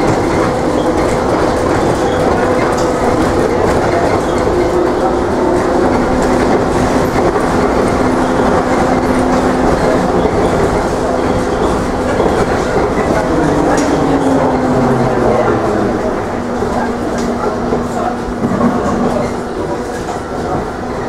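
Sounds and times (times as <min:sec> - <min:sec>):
road rumble: 0:08.8 - 0:20.0.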